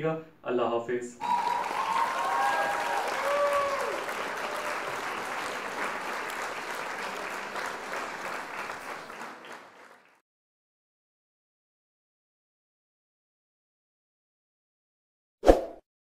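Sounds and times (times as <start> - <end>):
crowd applause: 1.2 - 10.2.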